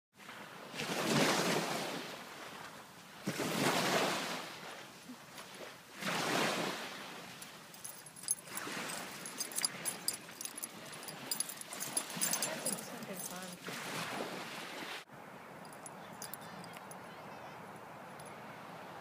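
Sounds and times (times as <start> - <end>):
small waves washing on sand: 0.2 - 15.1.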